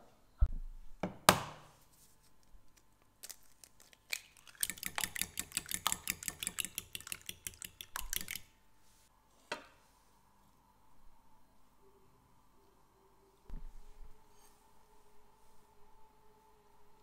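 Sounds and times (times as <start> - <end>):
fork beating egg in bowl: 4.4 - 8.5.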